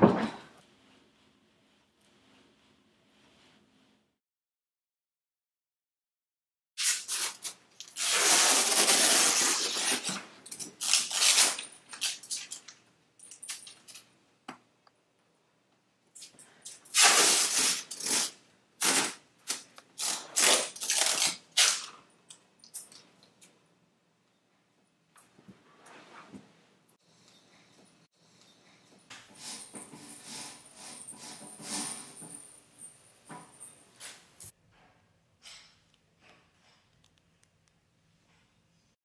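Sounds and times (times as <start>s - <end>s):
tape ripping off roll: 6.8s - 12.4s, 16.9s - 22.0s.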